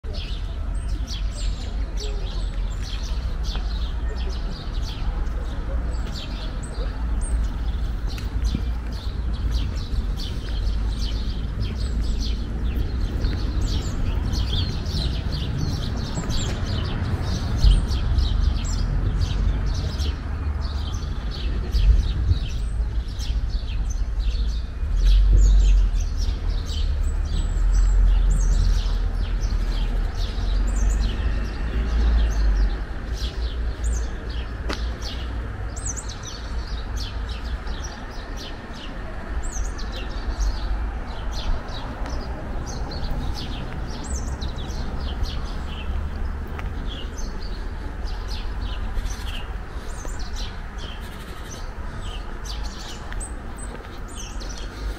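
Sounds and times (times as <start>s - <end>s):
small birds chirping and twittering: 0.0s - 54.9s
steady low rumble: 5.4s - 24.2s.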